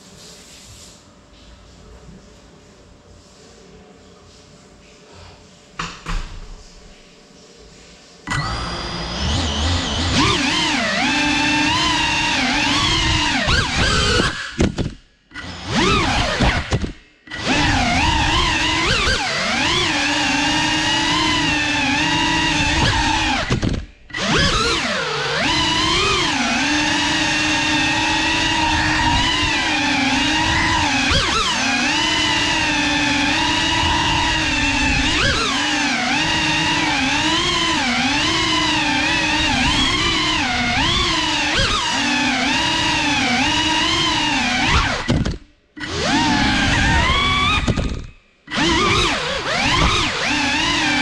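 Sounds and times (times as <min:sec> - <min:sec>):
drone motors whining: 0:08.3 - 0:51.0.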